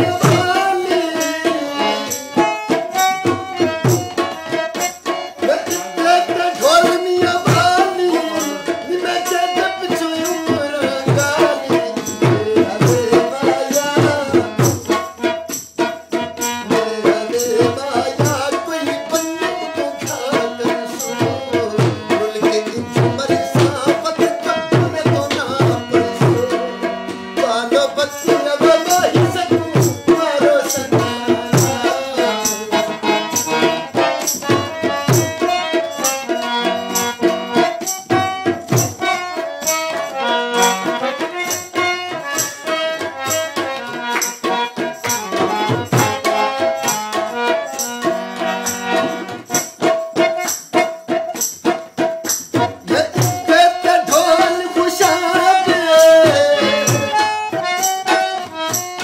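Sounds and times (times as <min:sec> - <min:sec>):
harmonium melody: 0:00.0 - 0:59.0
shaken or clapped percussion: 0:00.0 - 0:59.0
tabla rhythm: 0:00.0 - 0:59.0.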